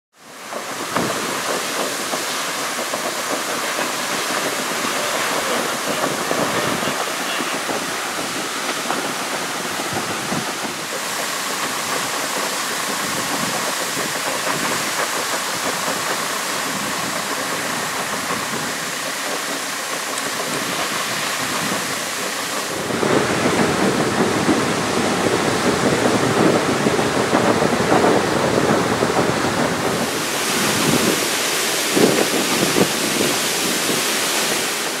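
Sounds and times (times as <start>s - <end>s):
water jetting from hydrant: 0.1s - 35.0s.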